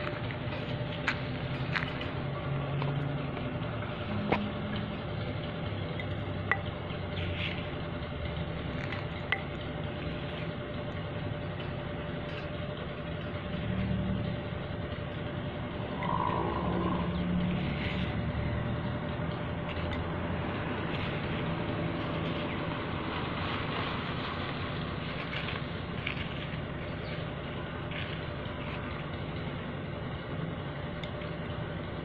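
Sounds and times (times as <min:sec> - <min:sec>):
trowel scooping soil: 0:07.2 - 0:07.8, 0:17.5 - 0:18.2, 0:20.8 - 0:29.1.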